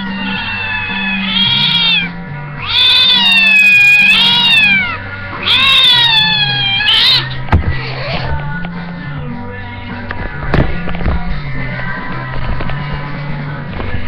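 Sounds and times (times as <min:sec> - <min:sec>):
kitten meowing loudly: 0:00.0 - 0:07.4
background music with bass line: 0:00.0 - 0:14.0.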